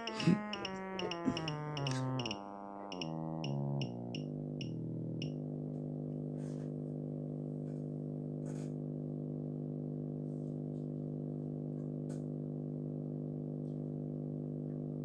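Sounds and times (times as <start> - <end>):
test tone through speaker: 0.0 - 5.4.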